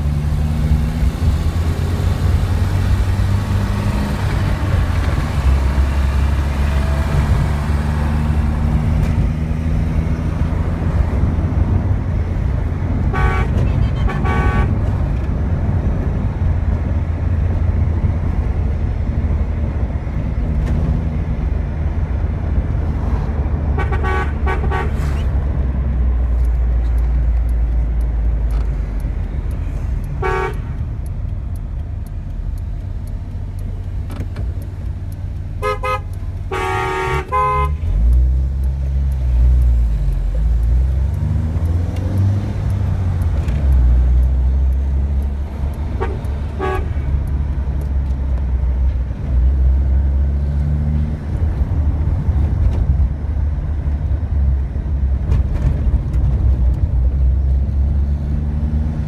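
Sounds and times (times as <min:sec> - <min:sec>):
car engine and road rumble: 0:00.0 - 0:59.0
car horn toots: 0:13.1 - 0:14.8, 0:23.8 - 0:25.0, 0:30.2 - 0:30.8, 0:35.6 - 0:37.9, 0:46.0 - 0:47.1.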